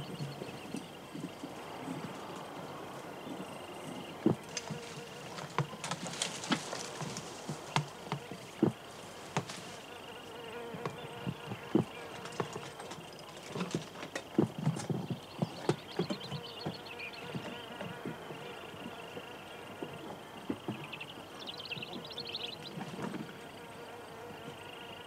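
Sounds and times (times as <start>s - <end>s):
equipment bumping rock: 4.2s - 10.0s, 10.6s - 18.2s
boots scuffing on rock: 4.3s - 9.9s.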